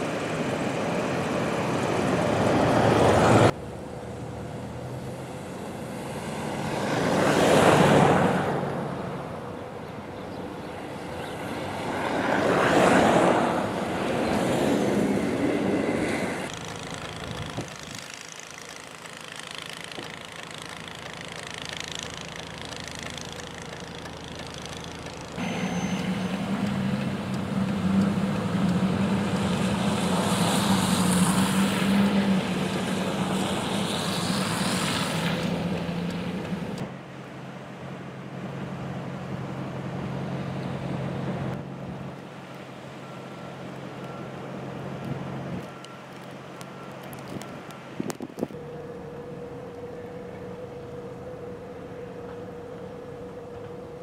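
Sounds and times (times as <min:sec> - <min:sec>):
vehicle passing on snow: 0:00.0 - 0:09.5, 0:10.7 - 0:42.1
snowblower engine running: 0:16.5 - 0:34.3.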